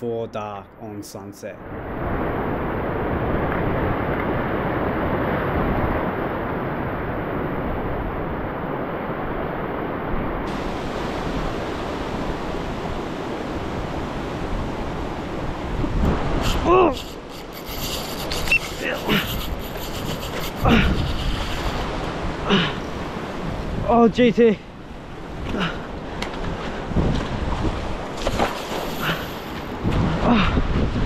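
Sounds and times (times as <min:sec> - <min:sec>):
surf breaking over rocks: 0:25.4 - 0:31.0.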